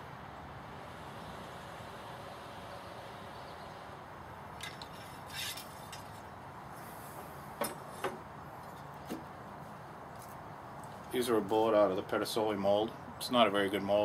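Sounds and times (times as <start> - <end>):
brief rustle: 4.6 - 6.3.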